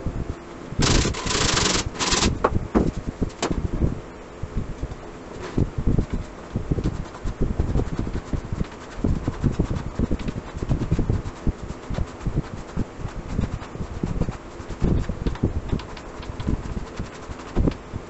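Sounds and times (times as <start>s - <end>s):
hand rubbing on plywood: 5.4s - 17.9s.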